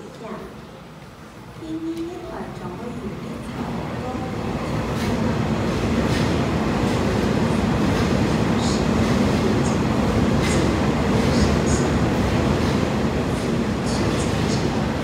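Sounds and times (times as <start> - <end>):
train wheels rumbling on rail: 3.5 - 15.0.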